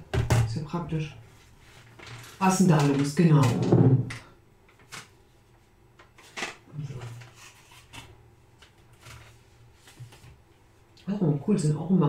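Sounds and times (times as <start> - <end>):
paper and packaging rustling: 1.4 - 3.5, 6.0 - 10.4.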